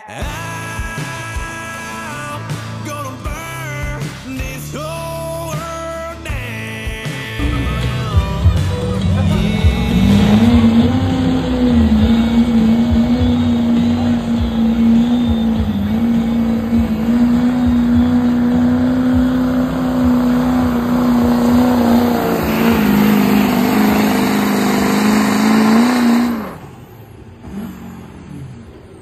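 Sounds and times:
truck engine at full throttle: 7.1 - 29.0.

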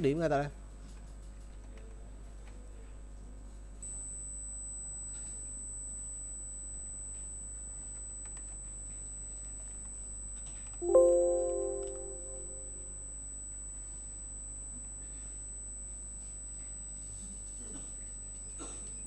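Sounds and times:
faint high-pitched whine: 10.8 - 12.8
loud ringing chord: 10.8 - 12.8
music: 10.8 - 12.8.

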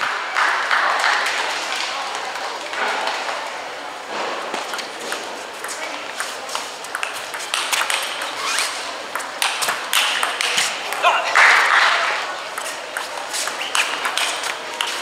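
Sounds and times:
table tennis ball clicking: 4.7 - 11.0, 12.5 - 15.0.

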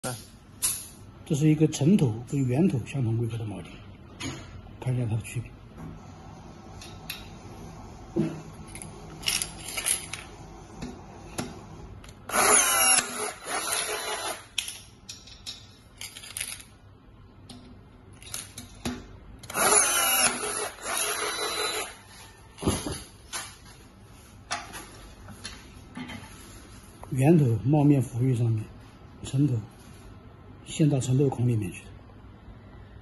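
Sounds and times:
power rivet tool running: 12.3 - 14.5, 19.4 - 21.9.

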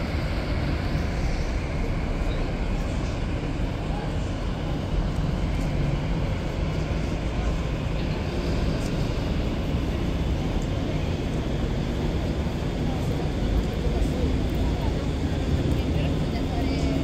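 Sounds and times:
cable machinery rumble and hum: 0.0 - 17.0
city traffic noise: 0.0 - 17.0.

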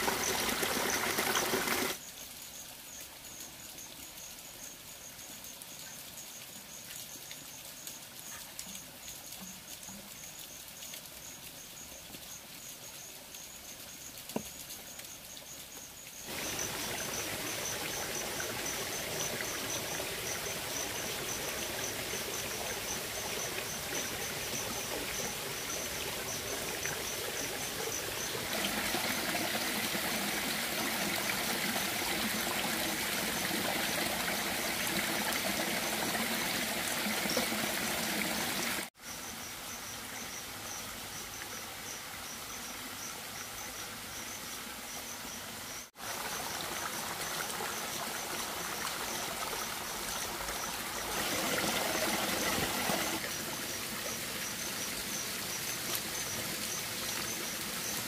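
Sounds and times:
stream water rushing: 0.0 - 2.0, 16.3 - 38.9, 45.7 - 58.0
insect chirping: 0.0 - 58.0.

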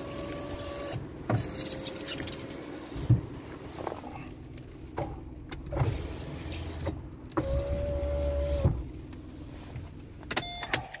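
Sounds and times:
car engine rumble: 0.0 - 11.0
electric window motor whine: 5.8 - 8.8.

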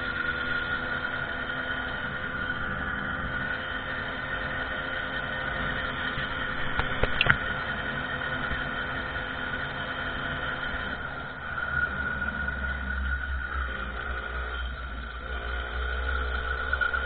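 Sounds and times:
moped engine running: 0.0 - 17.0
sharp clicks: 6.7 - 7.4.

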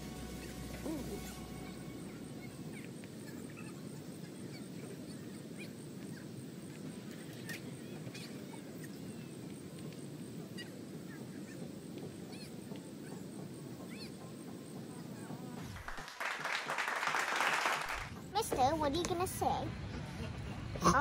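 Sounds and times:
faint pulsing high sound: 0.0 - 4.5
steady low rush: 0.0 - 7.0
bird calls: 0.3 - 15.4.

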